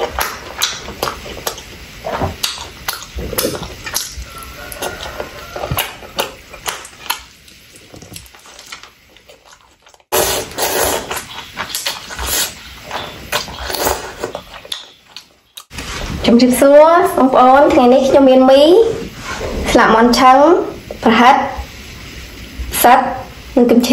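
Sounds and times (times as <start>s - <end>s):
noodle slurping: 0.0s - 14.8s
wet chewing: 0.0s - 15.7s.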